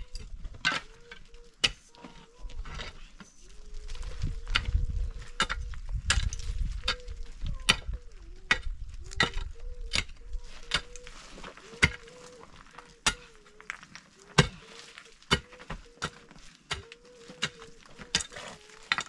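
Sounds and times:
mattock striking stony ground: 0.1s - 19.0s.

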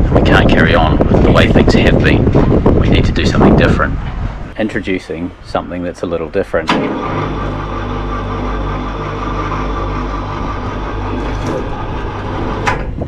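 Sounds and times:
winch motor humming: 6.6s - 13.0s.

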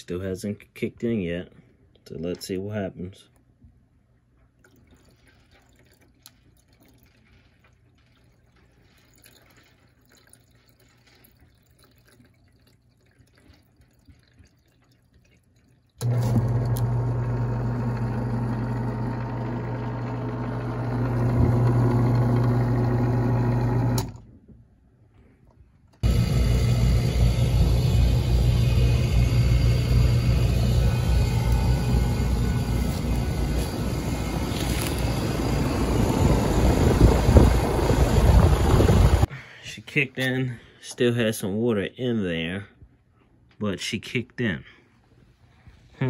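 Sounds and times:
faint water trickle: 4.4s - 16.0s
electric pump motor humming: 16.0s - 24.2s, 26.0s - 39.3s.

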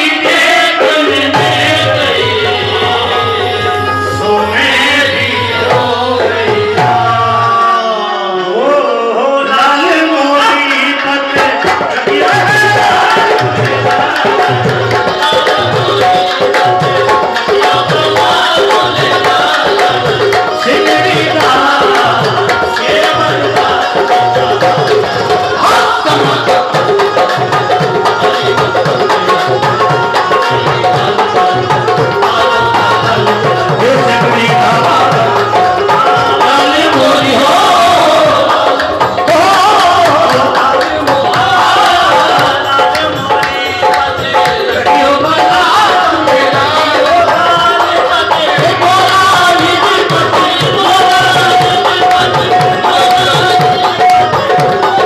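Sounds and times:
hand drums beating: 0.0s - 7.7s, 10.5s - 55.0s
keyboard melody: 0.0s - 9.8s
person singing: 0.0s - 55.0s.

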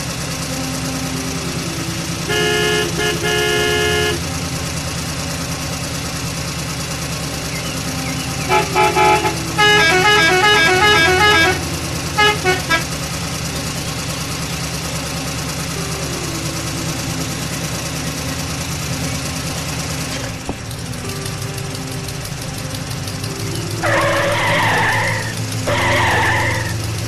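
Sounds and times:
truck engine running: 0.0s - 27.0s
multi-note truck horn: 2.2s - 4.8s, 8.4s - 13.5s, 23.8s - 27.0s.

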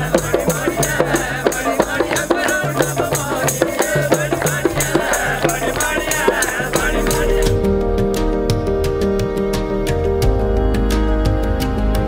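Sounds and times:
person singing: 0.0s - 7.8s
rattling beat: 0.0s - 10.4s
hand drums: 0.0s - 12.0s.

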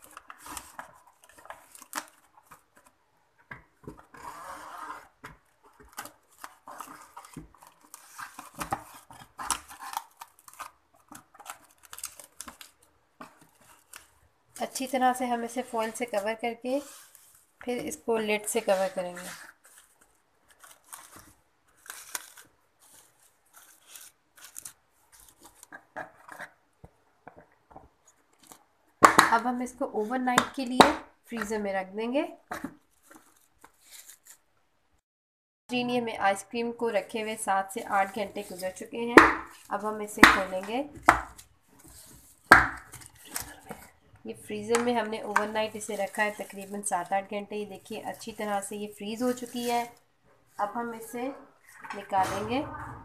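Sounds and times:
cling film crinkling: 0.0s - 2.9s, 5.2s - 17.6s, 18.4s - 25.8s, 32.7s - 34.5s, 37.2s - 50.6s.

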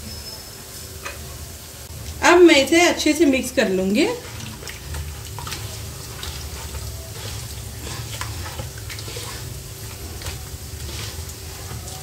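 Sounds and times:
hands squelching wet marinade: 3.7s - 12.0s.

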